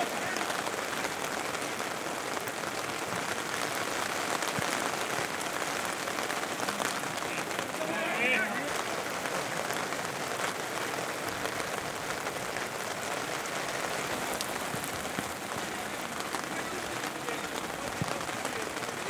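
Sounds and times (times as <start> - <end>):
rain falling: 0.0 - 19.0.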